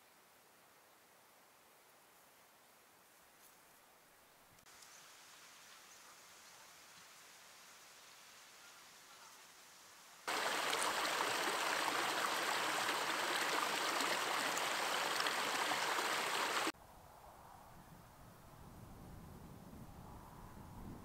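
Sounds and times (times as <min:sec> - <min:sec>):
rushing water: 0:10.3 - 0:16.8.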